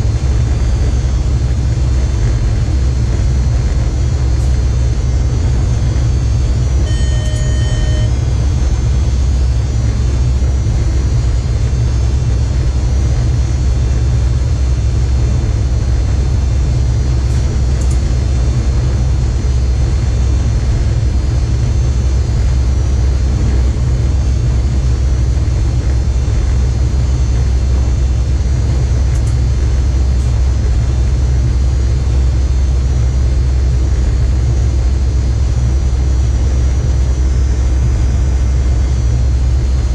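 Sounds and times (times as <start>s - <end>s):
locomotive cab low rumble: 0.0s - 39.9s
short electronic beep: 6.8s - 8.2s.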